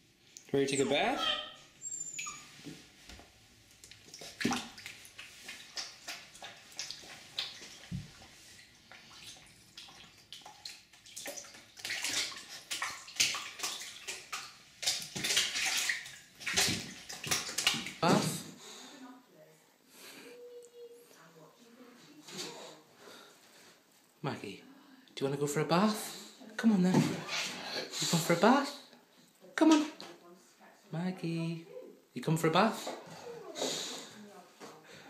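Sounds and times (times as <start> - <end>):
puppy claws scratching bathtub: 2.2 - 18.4.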